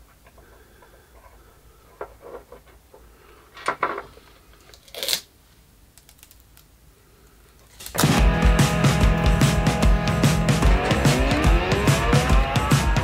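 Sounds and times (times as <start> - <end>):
small parts clicking and rustling: 0.0 - 5.3, 5.9 - 8.0.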